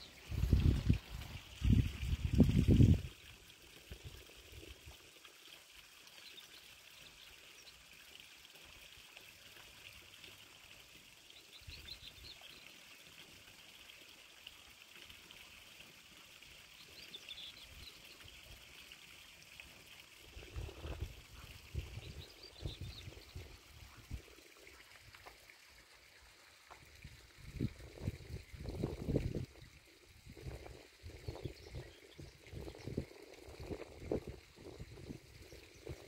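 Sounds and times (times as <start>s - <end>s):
faint outdoor hiss: 0.0s - 36.0s
wind buffeting microphone: 0.3s - 3.1s, 27.0s - 29.6s.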